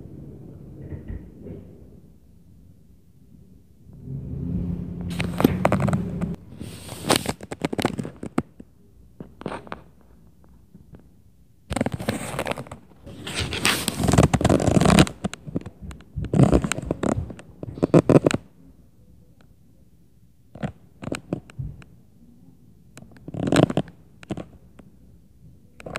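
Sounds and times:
crackly scraping: 5.1s - 11.1s, 11.7s - 18.4s, 23.0s - 24.6s.

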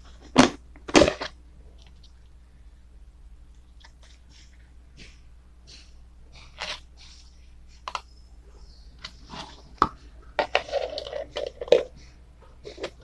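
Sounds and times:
plastic lid clicking and scraping: 9.0s - 12.0s.

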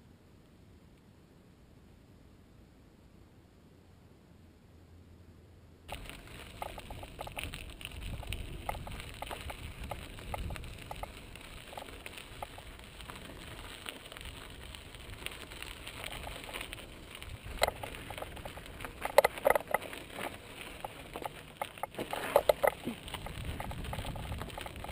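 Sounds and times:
bike clattering over rocks: 5.9s - 24.9s
bike rattling: 5.9s - 24.9s
bike tyres crackling on gravel: 5.9s - 24.9s.

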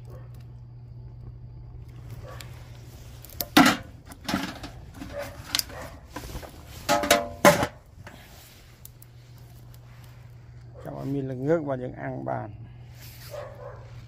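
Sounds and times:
metal pail lid clanking: 3.4s - 5.7s, 6.8s - 7.8s.

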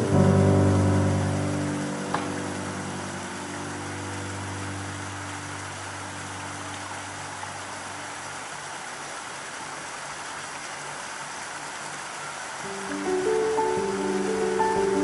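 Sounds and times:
held low music chord: 0.0s - 8.0s, 12.7s - 15.0s
steady hiss: 0.0s - 15.0s.

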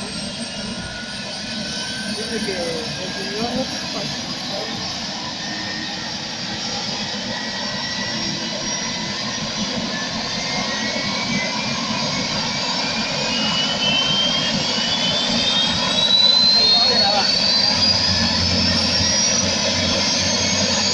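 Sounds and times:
helicopter engine and rotor: 0.0s - 20.9s
turbine whine rising in pitch: 0.0s - 20.9s.

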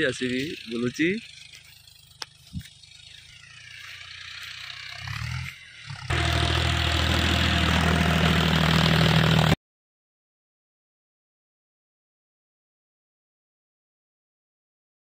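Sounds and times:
tractor diesel engine running: 0.0s - 9.6s.

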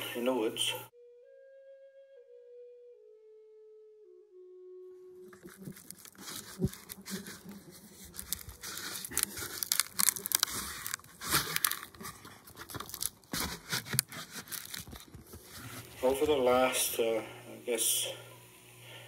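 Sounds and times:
bark crackling and tearing: 5.3s - 16.4s.

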